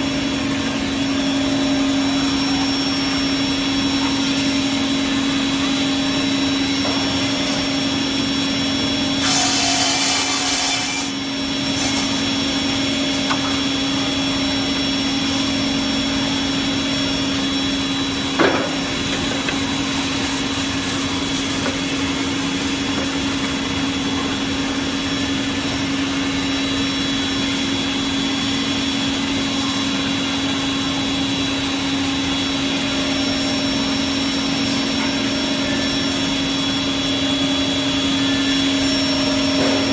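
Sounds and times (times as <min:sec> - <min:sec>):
saw running with hum and whine: 0:00.0 - 0:39.9.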